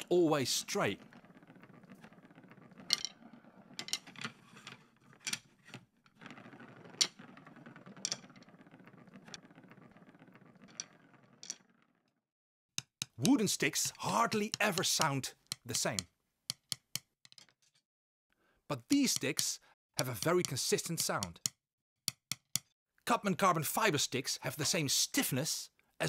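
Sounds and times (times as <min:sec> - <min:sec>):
drumsticks rolling on a table: 0:00.4 - 0:12.0, 0:12.8 - 0:17.8.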